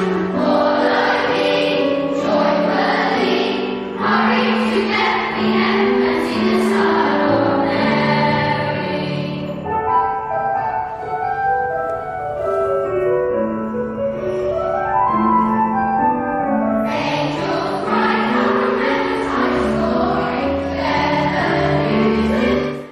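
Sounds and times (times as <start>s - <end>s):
choir singing held notes: 0.0s - 10.6s, 16.4s - 22.9s.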